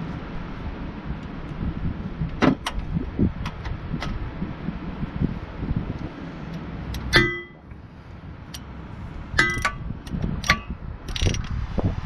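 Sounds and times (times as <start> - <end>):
metal tools clanging on steel parts: 9.4 - 9.8.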